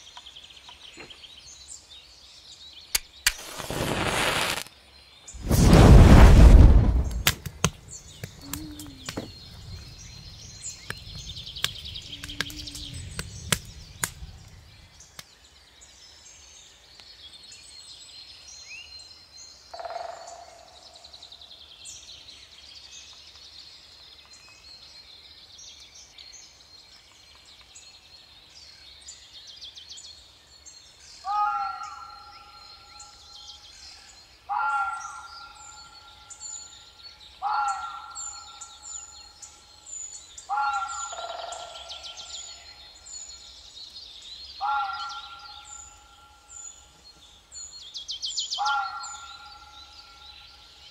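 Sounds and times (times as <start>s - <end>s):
birds chirping: 0.0s - 19.0s, 30.5s - 50.9s
wood fire crackling and popping: 3.0s - 4.7s, 5.4s - 15.3s
low rumble: 5.4s - 15.0s
harsh bird calls: 5.4s - 15.2s, 31.1s - 50.9s.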